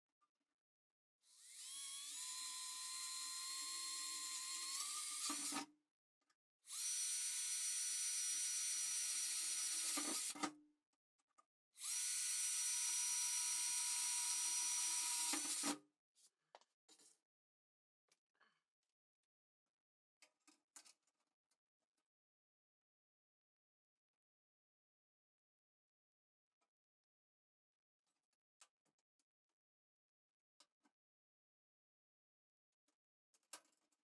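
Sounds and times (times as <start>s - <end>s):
cordless drill whining through steel: 1.2s - 5.7s, 6.7s - 10.5s, 11.8s - 15.8s.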